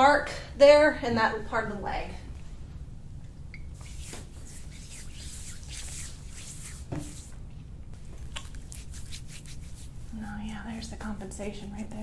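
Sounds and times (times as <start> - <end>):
hands rubbing skin: 3.8 - 7.4, 8.0 - 10.7
soft bump: 6.9 - 7.2.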